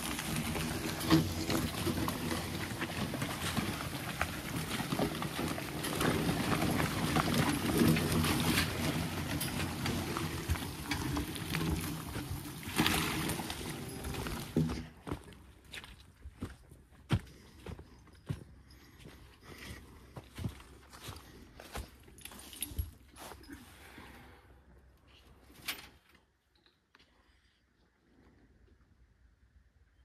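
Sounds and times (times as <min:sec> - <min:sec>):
log scraping over ground: 0:00.0 - 0:18.4.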